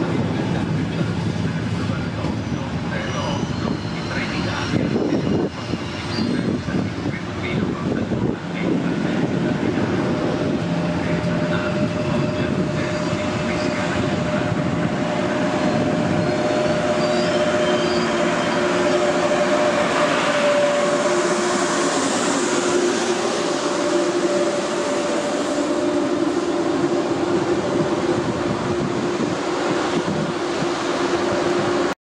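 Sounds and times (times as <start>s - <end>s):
train wheels rumbling on rails: 0.0s - 31.9s
train whine: 0.0s - 32.0s.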